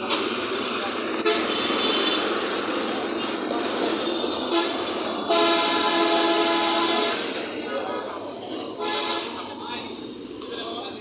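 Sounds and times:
road traffic engines: 0.0 - 11.0
vehicle horn honking: 1.2 - 2.3, 4.5 - 7.3, 8.8 - 9.4.

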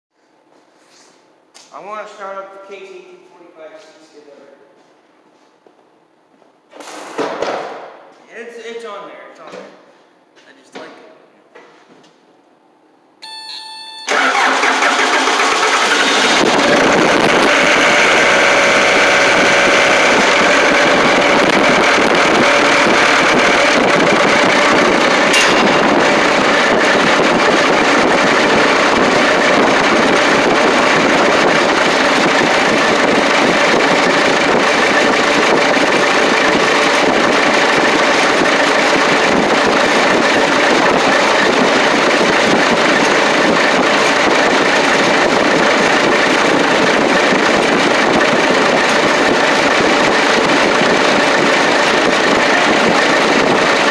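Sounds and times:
short steady tone: 13.2 - 14.2
diesel engine cranking and running: 14.0 - 53.9.

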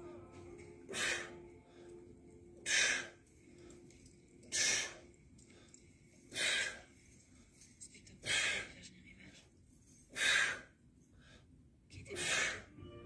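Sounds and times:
man breathing out hard: 0.9 - 2.0, 6.3 - 6.8.

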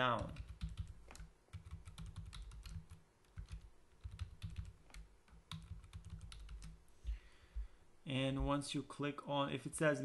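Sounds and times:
keyboard typing: 0.1 - 6.8.

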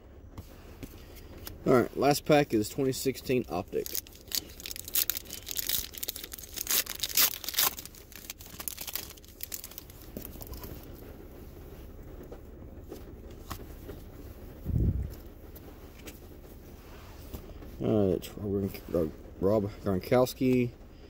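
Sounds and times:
handling of cards: 2.7 - 11.1, 12.2 - 16.2
foil wrapper tearing and crinkling: 3.5 - 10.7.

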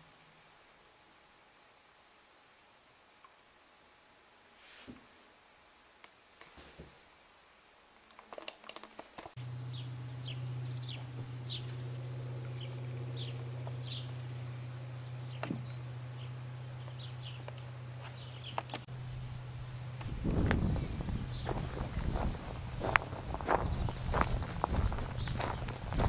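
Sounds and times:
small birds chirping: 9.4 - 26.0
steady low hum: 9.4 - 26.0.

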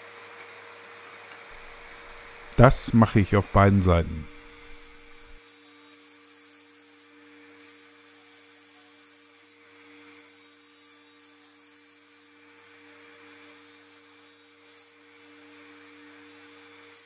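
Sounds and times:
router motor humming: 1.5 - 2.6, 4.3 - 17.0
high whine: 1.6 - 5.4.

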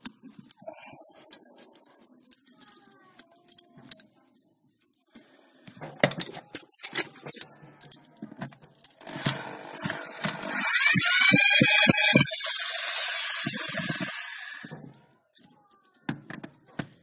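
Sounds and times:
angle grinder running: 9.0 - 14.7.

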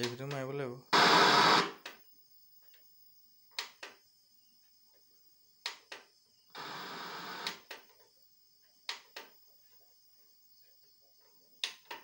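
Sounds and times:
tv static hiss: 0.9 - 1.8, 6.5 - 7.6.

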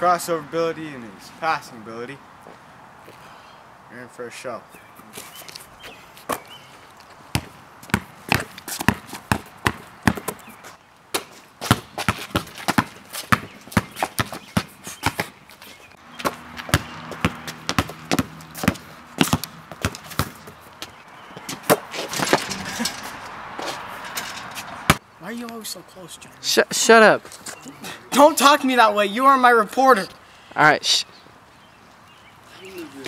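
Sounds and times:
basketball bouncing on concrete: 7.3 - 10.5, 11.1 - 15.3, 16.0 - 22.4, 24.6 - 25.0.

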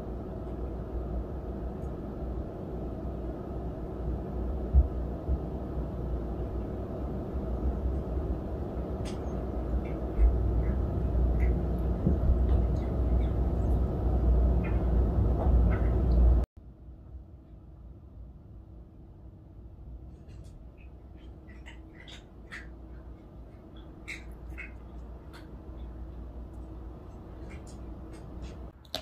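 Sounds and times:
low rumble: 0.0 - 20.1
cat chewing grass: 8.8 - 14.8.

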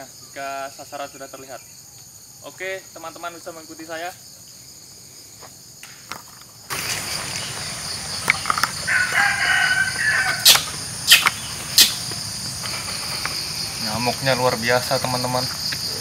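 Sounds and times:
insects buzzing: 0.0 - 16.0
rooster crowing: 8.7 - 11.0
sharp snaps: 10.2 - 13.4.

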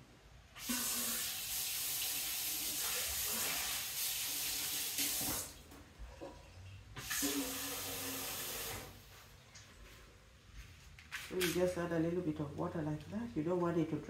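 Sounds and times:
water running from tap: 0.6 - 5.6, 7.0 - 9.0.

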